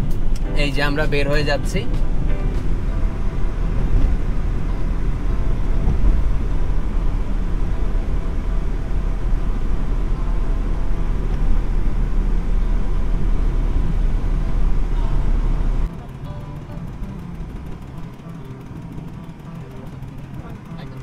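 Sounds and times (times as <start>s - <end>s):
vehicle road and engine rumble: 0.0s - 21.0s.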